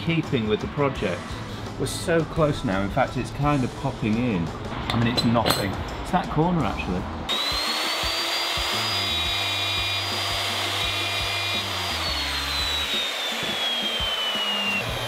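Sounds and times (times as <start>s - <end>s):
router high whine: 7.3s - 15.0s.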